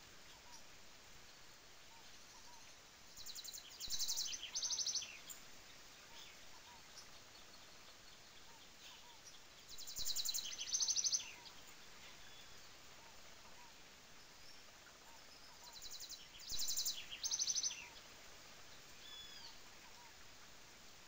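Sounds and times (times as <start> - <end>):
falling water hiss: 0.0 - 21.0
songbird trilling: 1.9 - 5.4, 8.4 - 12.6, 14.4 - 18.0.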